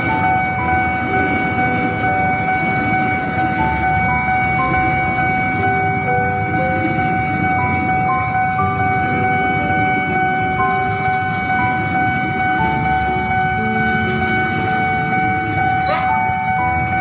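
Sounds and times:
high steady tone: 0.0 - 17.0
shorter tones at shifting pitches: 0.0 - 17.0
train wheels rumbling on rails: 0.0 - 17.0.

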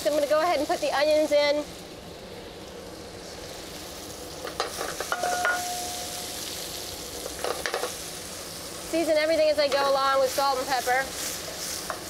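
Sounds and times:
potatoes sizzling in oil: 0.0 - 12.0
short ringing note: 5.2 - 6.3.

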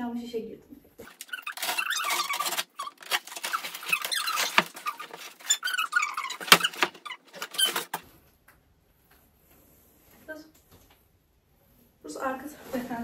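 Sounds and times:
squeaks and sharp clicks: 1.0 - 8.0
cardboard rubbing and scraping: 1.1 - 8.0.

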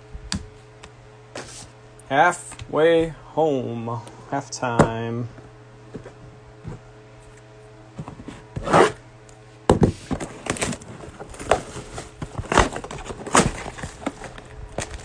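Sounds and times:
plastic wrap rustling: 10.1 - 15.0.

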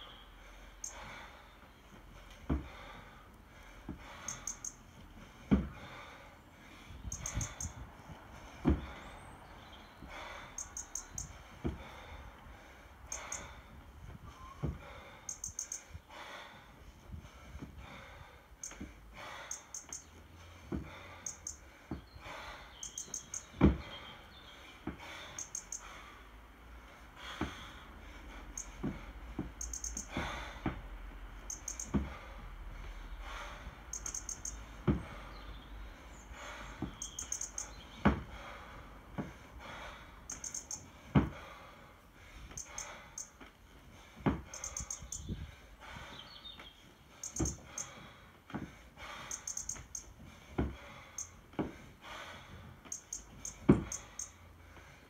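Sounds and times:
bird chirping: 0.0 - 2.0, 4.2 - 4.9, 6.4 - 7.8, 8.6 - 11.4, 15.2 - 16.0, 19.4 - 20.3, 21.2 - 26.0, 28.5 - 28.9, 29.6 - 30.2, 31.4 - 32.0, 33.9 - 38.1, 40.3 - 40.9, 42.5 - 43.4, 44.5 - 45.4, 46.0 - 48.0, 49.3 - 50.1, 52.8 - 54.4
sharp exhales: 2.2 - 9.2, 17.4 - 46.4
kettlebell thuds: 31.8 - 32.2, 53.6 - 53.9.

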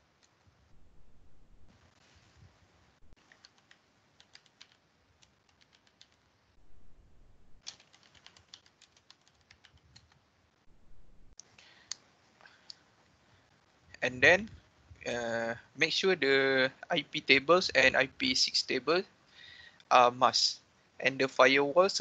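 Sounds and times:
faint keyboard typing: 0.0 - 0.6, 3.1 - 6.4, 7.6 - 10.4
low background noise: 0.0 - 22.0.

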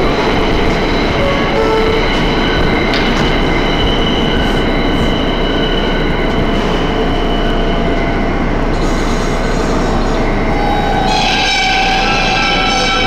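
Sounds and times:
high-pitched tones: 0.0 - 7.6
subway train rumbling: 0.0 - 13.0.

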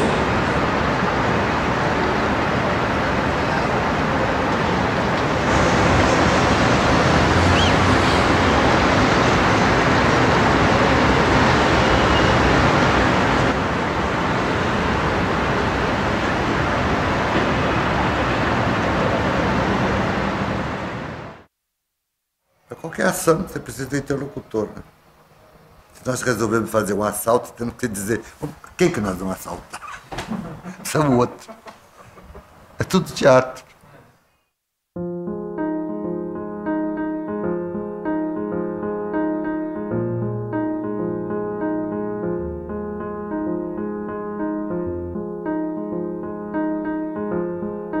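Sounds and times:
road traffic noise: 0.0 - 21.4.

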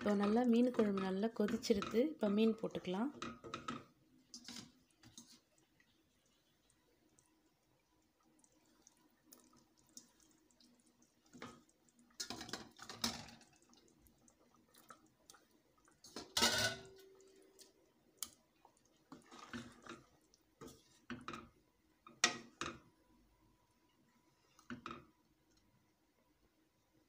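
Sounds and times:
wooden spatula scraping metal pot: 0.0 - 5.5, 19.1 - 21.5.

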